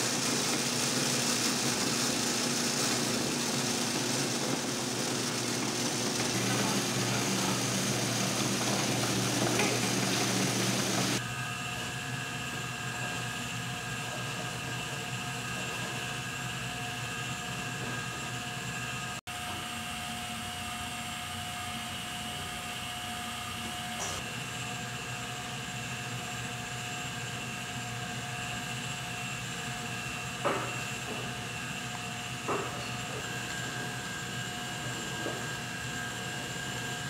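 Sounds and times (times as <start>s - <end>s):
electric mincer grinding: 0.0s - 11.2s
machine hum with faint whine: 0.0s - 37.0s.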